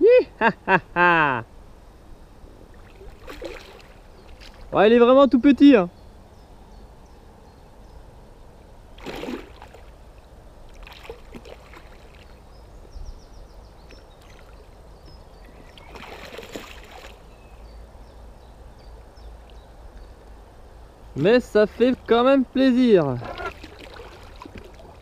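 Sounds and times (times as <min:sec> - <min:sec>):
wind and water rumble: 0:00.0 - 0:25.0
fish splashing at water surface: 0:02.8 - 0:04.7, 0:09.0 - 0:09.9, 0:10.7 - 0:12.3, 0:15.9 - 0:17.2, 0:23.3 - 0:25.0.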